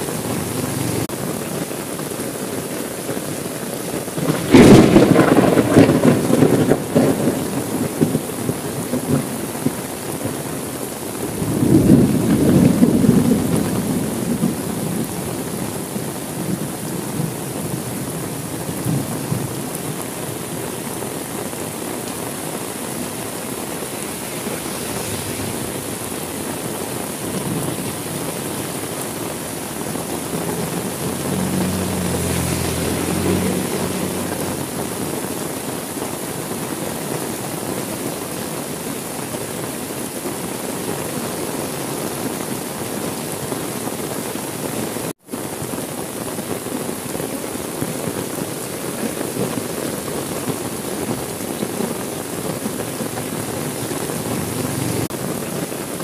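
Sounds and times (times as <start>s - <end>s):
heavy rain: 0.0s - 56.0s
thunder rolling: 4.2s - 9.8s, 11.3s - 15.4s, 22.7s - 34.8s.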